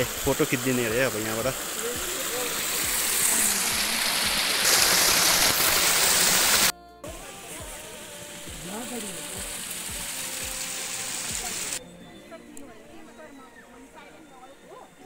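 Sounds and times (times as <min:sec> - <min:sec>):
water splashing down cascade: 0:00.0 - 0:11.8
background music with beat: 0:06.7 - 0:14.7.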